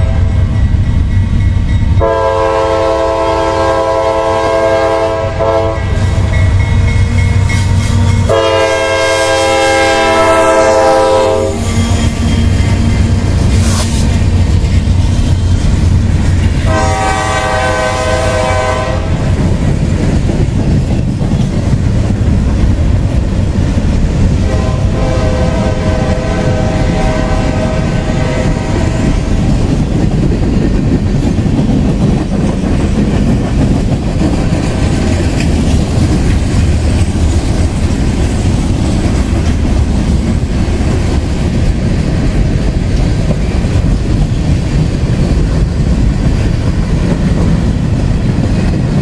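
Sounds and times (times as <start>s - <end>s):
locomotive engine rumble: 0.0s - 49.0s
train wheels clacking on rails: 0.0s - 49.0s
train air horn: 2.0s - 6.4s, 7.0s - 12.6s, 16.6s - 19.3s, 24.4s - 29.1s.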